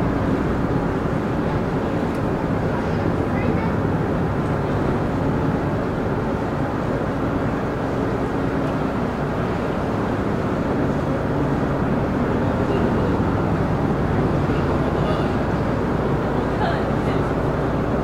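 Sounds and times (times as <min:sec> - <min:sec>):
ferry engines rumbling: 0:00.0 - 0:18.0
propellers churning water: 0:00.0 - 0:18.0.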